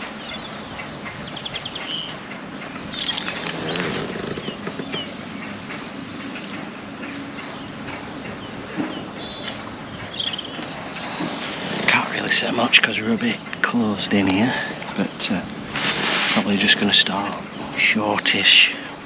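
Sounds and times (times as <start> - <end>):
small birds chirping: 0.0 - 19.0
background hiss: 9.1 - 19.0.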